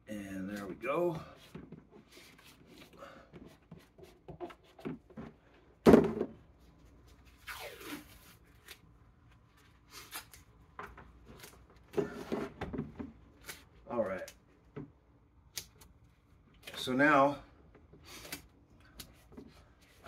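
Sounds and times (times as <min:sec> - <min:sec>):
paper tape pulled off roll: 0:07.3 - 0:08.8, 0:09.9 - 0:10.5.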